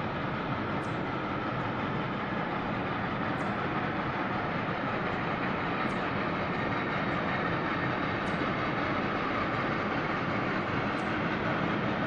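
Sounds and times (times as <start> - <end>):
distant steam locomotive rushing: 0.0 - 12.0.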